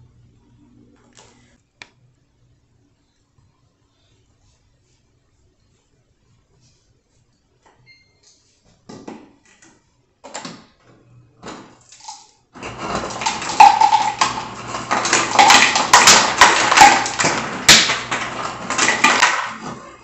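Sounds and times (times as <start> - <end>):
water dispenser filling bottle: 11.5 - 20.0.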